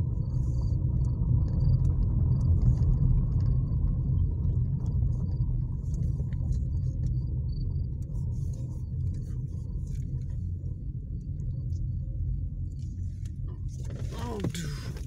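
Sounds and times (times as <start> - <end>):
faint clicks and rattles: 0.2 - 12.0.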